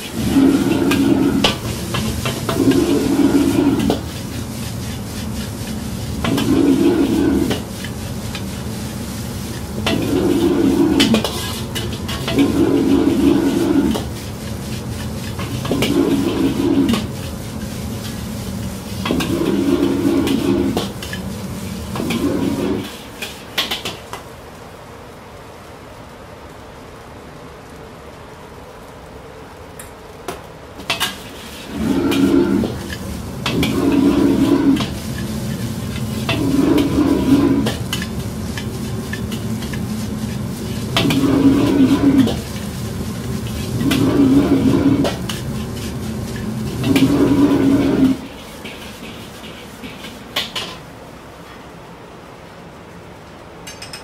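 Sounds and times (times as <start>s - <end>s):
gas burner roaring: 0.0s - 53.7s
steady hiss: 0.0s - 53.7s
steady sizzle: 0.0s - 53.8s
metal ladle scraping a wok: 0.1s - 8.6s, 9.5s - 18.2s, 30.9s - 50.8s.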